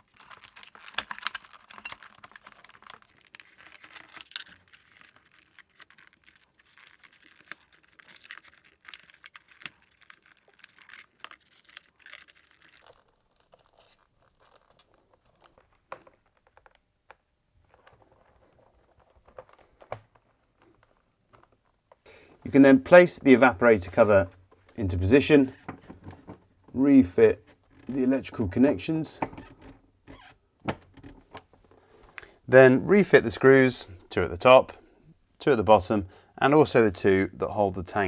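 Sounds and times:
tape and foil crinkling: 0.0 - 16.8, 17.6 - 24.6.

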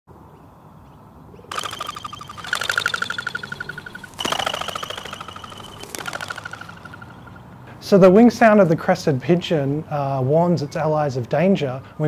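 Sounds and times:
pigeon wings whistling: 1.5 - 7.4.

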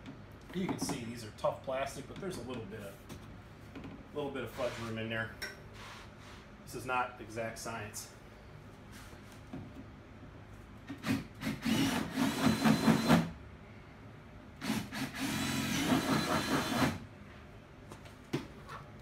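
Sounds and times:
power drill running: 11.0 - 13.3, 14.6 - 17.0.

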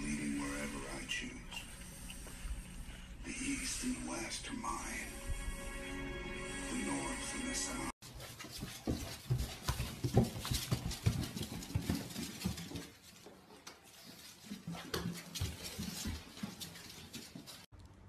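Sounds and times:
puppy paws pattering: 8.0 - 17.7.

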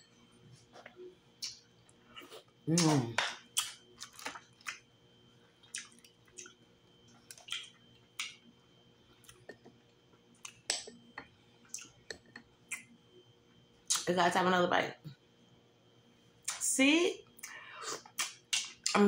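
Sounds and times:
wet chewing and lip smacks: 0.8 - 4.9, 5.6 - 8.5, 9.2 - 13.0, 17.4 - 19.0.

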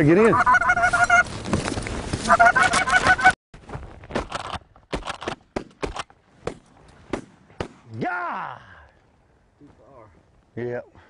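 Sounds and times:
goose honking: 0.3 - 1.3, 2.3 - 3.4
sharp clicks and knocks: 4.1 - 6.2.

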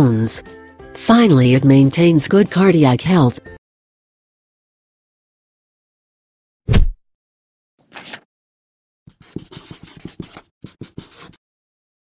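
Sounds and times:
brief swish: 6.7 - 7.0
loud thump: 6.7 - 7.0
marker scratching on paper: 9.1 - 11.4.

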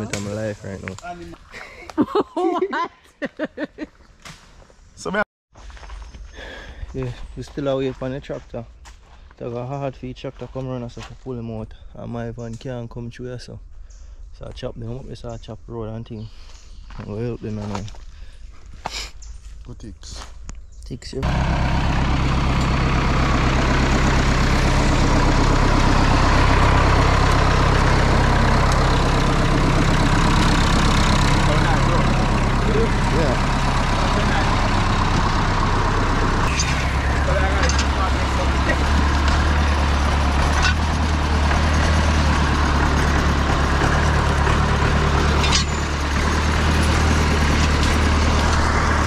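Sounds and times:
tractor engine running: 0.0 - 1.6, 21.2 - 49.0.

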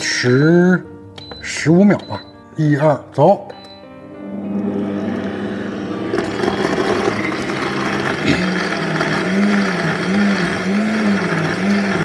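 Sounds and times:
blender crushing ice: 5.1 - 12.0.

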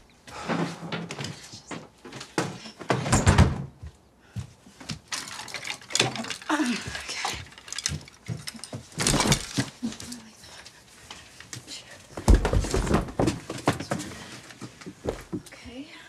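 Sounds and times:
clothes rustling: 3.9 - 15.6
clicks and clatter: 5.1 - 10.1.

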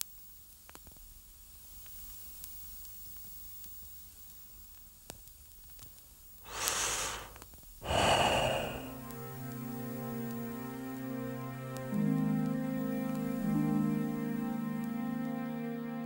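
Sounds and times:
faint hiss: 0.0 - 14.8
person breathing heavily: 6.5 - 9.1.

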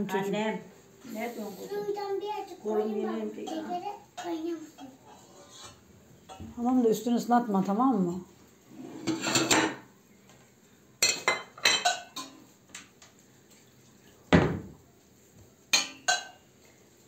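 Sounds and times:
metal utensil clinking on pot: 11.0 - 12.4, 15.7 - 16.5.

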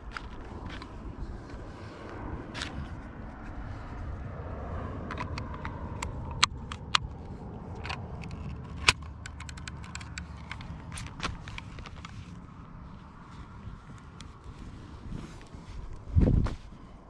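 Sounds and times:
rifle action metallic clicks: 5.0 - 12.2.

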